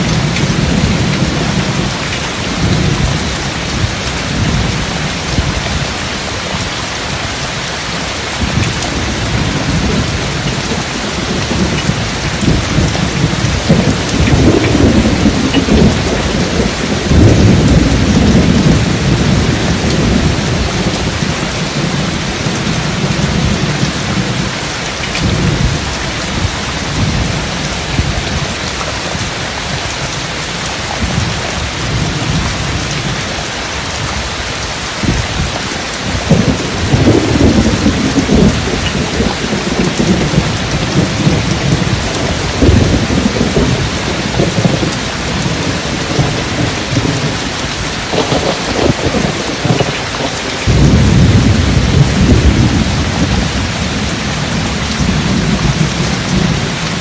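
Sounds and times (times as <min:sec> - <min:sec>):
rolling thunder: 0:00.0 - 0:06.0, 0:08.3 - 0:29.4, 0:34.0 - 0:57.0
heavy rain: 0:00.0 - 0:57.0.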